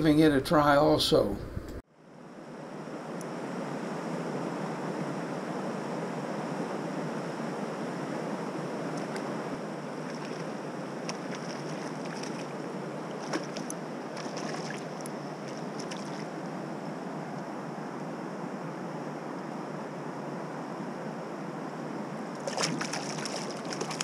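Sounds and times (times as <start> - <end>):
stream water flowing: 8.8 - 16.5, 22.3 - 24.0
fish splashing at surface: 10.0 - 12.5, 13.2 - 16.3, 22.4 - 24.0.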